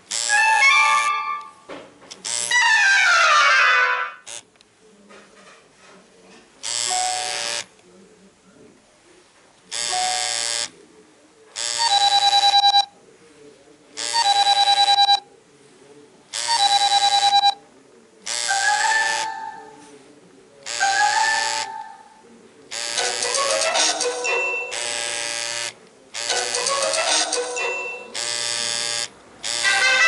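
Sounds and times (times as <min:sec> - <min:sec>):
electronic ringtone bursts: 0:00.1 - 0:01.6, 0:11.7 - 0:12.9, 0:16.4 - 0:17.6, 0:18.3 - 0:19.8, 0:20.7 - 0:21.9, 0:22.8 - 0:30.0.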